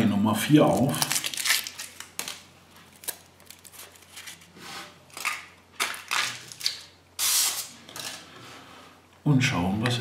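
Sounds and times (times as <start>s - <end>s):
foil wrapper rustling: 0.6s - 8.1s.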